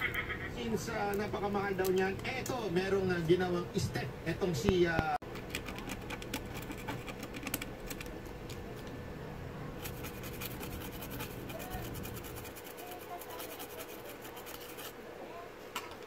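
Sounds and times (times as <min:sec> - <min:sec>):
faint steady hum: 0:00.0 - 0:16.0
brush scrubbing circuit board: 0:05.5 - 0:07.6, 0:09.8 - 0:15.0.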